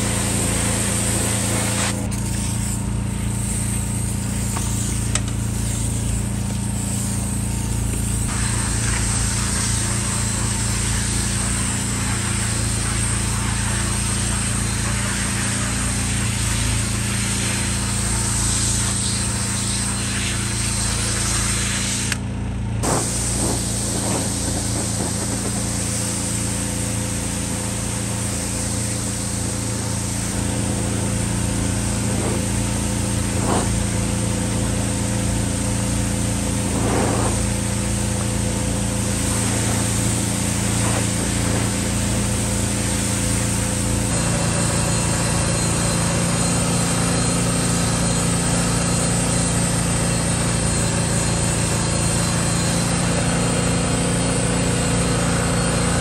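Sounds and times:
pressure washer spray hissing: 0.0 - 56.0
cordless drill spinning scrub brush: 22.8 - 56.0.

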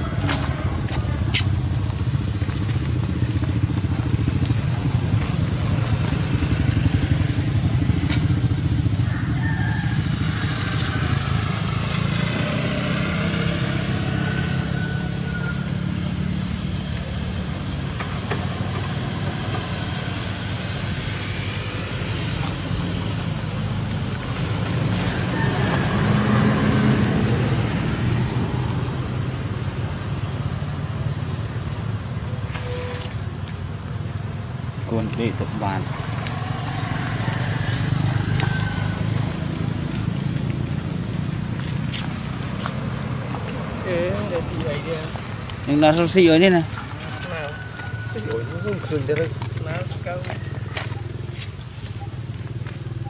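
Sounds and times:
vehicle engine idling: 0.0 - 12.4.

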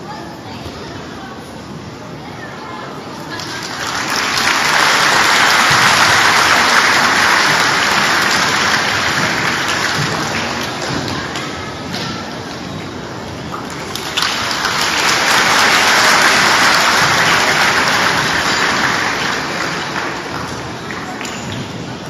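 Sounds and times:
audience applauding: 3.3 - 11.0, 13.7 - 21.4.

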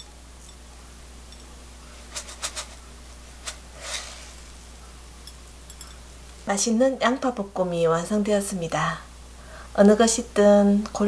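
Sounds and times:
low steady hum: 0.0 - 11.0
seeds rustling: 3.4 - 4.4.

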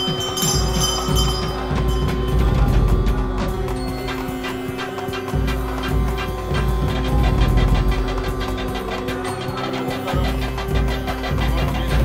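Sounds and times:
music with held drone: 0.0 - 12.0
quick percussive strikes: 0.0 - 12.0.

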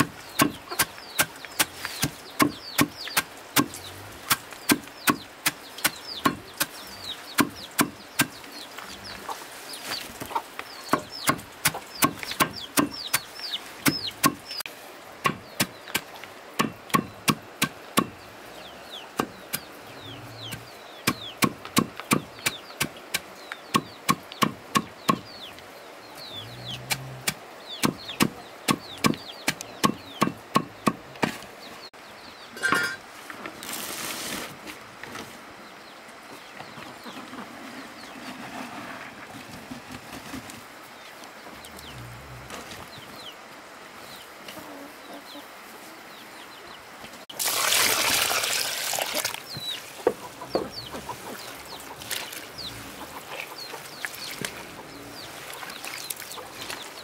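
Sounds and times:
chickens peeping and clucking: 0.0 - 34.2, 34.9 - 47.3, 48.5 - 57.0.

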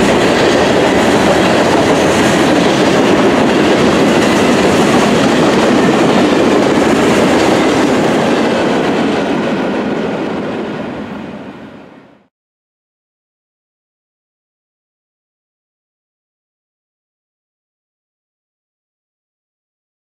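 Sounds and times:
train wheels on rails: 0.0 - 12.3.

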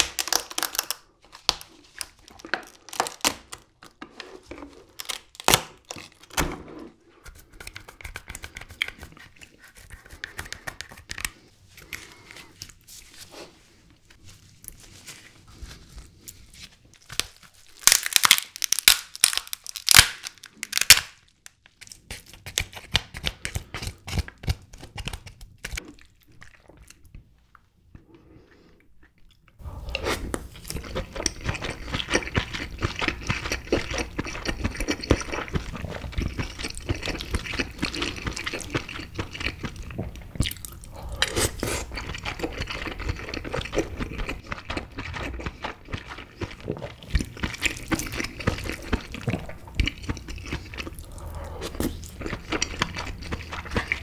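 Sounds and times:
crab shell crackling and snapping: 0.0 - 3.8, 17.0 - 25.8
wet chewing: 28.0 - 54.0.

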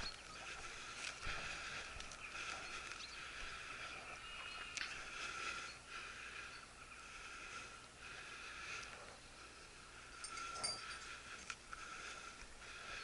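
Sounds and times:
dog collar bell jingling: 10.1 - 11.2.

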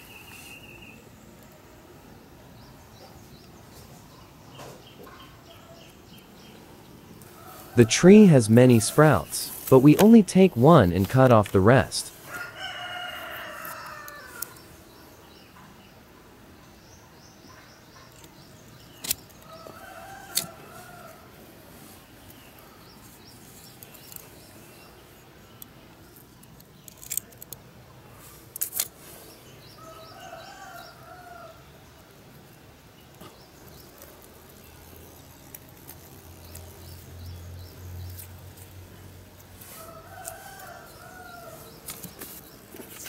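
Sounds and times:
pruning shears snipping: 7.9 - 12.5, 18.9 - 21.2
rooster crowing: 12.3 - 14.6, 29.8 - 31.6, 39.7 - 41.7.

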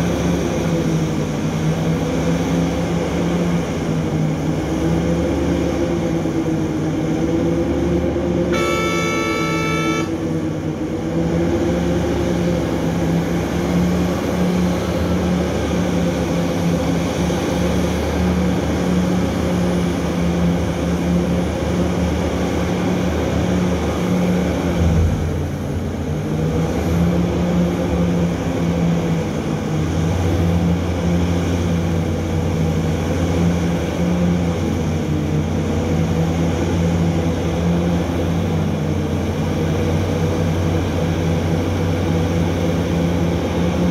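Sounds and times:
heavy diesel engines droning: 0.0 - 43.9
truck horn: 8.5 - 10.3.

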